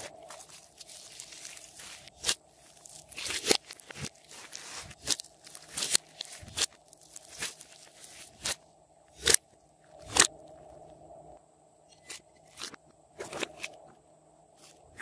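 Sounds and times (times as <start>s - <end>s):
slime squishing: 0.0s - 8.6s.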